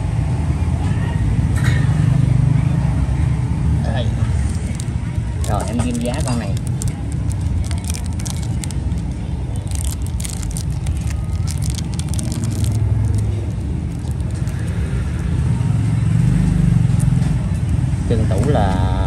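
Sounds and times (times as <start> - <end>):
road traffic rumble: 0.0 - 19.0
faint clicks and scrapes: 4.5 - 15.3.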